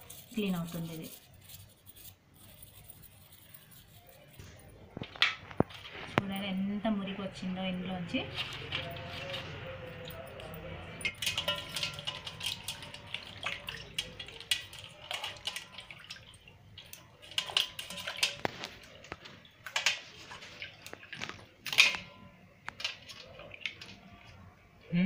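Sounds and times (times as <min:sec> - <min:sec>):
combs splashing in water: 0:11.0 - 0:22.1.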